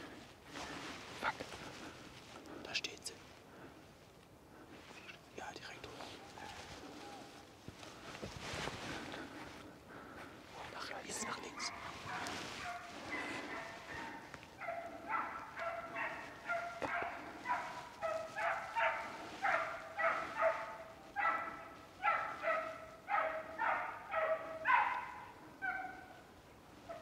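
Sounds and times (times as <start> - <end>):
hunting dog barking: 1.2 - 2.0, 5.8 - 7.5, 8.9 - 27.0.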